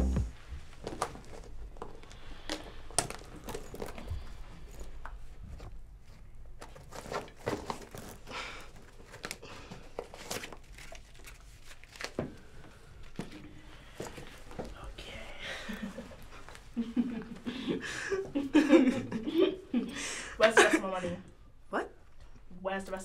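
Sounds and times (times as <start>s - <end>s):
crinkling and rustling: 0.5s - 17.4s.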